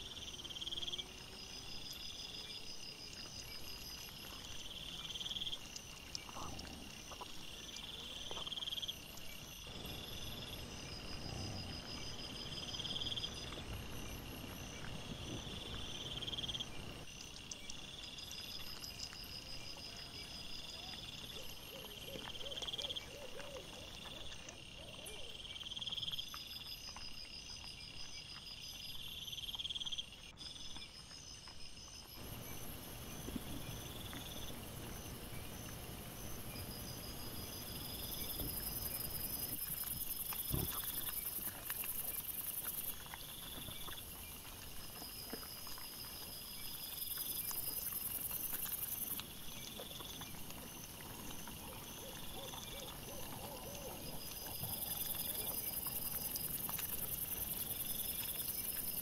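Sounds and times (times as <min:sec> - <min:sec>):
insect chirping in pulsed trills: 0:00.0 - 0:59.0.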